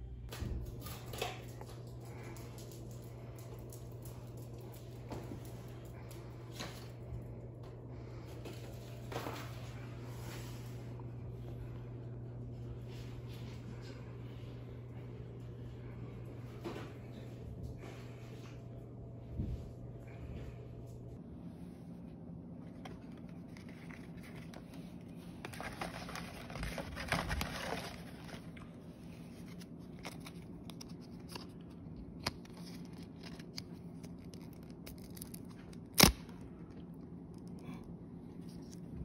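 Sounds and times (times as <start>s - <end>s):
low steady hum: 0.0s - 39.0s
paper tickets rustling: 22.9s - 28.6s.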